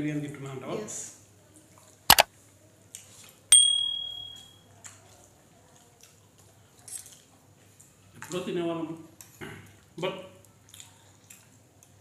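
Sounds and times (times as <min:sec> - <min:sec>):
clink on steel tableware: 0:03.5 - 0:04.5.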